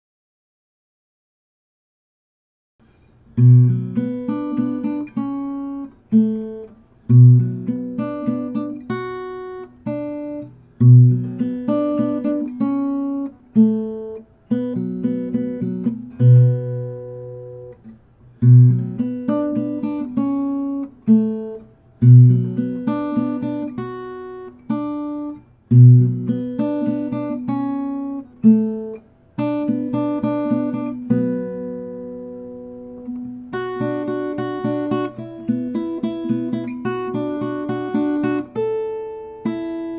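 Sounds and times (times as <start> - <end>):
acoustic guitar plucked tune: 2.8 - 39.9.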